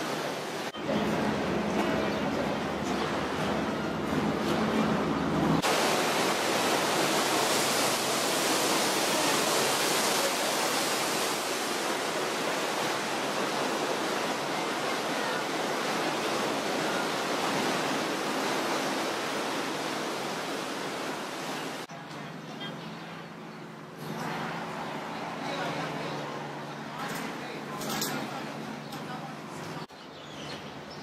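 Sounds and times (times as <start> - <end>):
river water rushing: 0.0 - 21.9.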